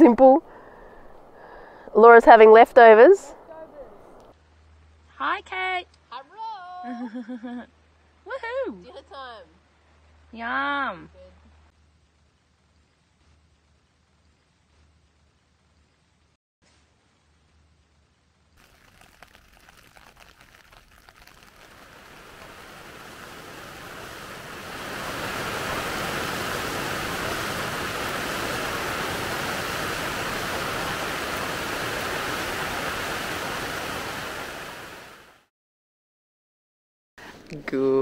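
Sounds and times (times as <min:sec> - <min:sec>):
rain pattering on a tent: 0:11.7 - 0:35.5.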